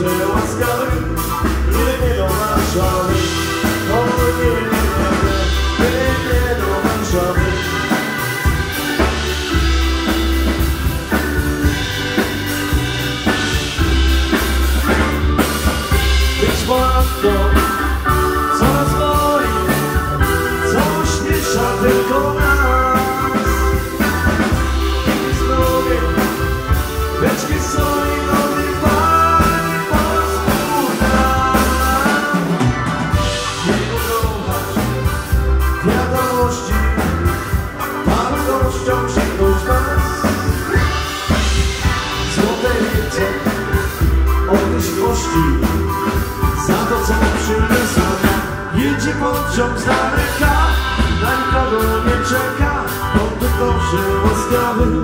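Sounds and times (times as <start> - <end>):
drum kit: 0.0 - 55.0
gliding lead melody: 0.0 - 55.0
pulsing bass: 0.0 - 55.0.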